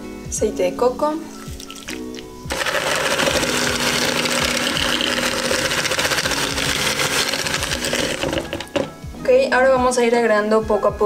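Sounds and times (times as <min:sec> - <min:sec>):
electric hand mixer running: 0:01.9 - 0:08.9.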